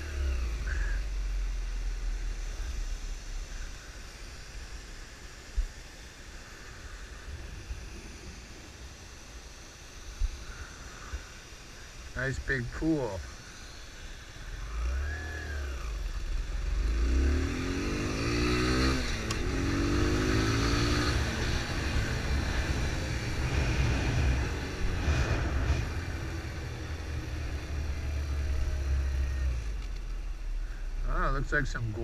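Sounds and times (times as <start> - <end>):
motorcycle engine revving: 14.4 - 32.0.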